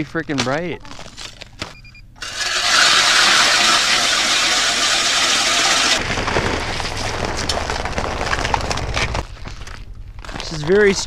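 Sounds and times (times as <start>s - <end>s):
ice auger grinding: 2.2s - 9.1s
car engine rumbling: 2.2s - 11.0s.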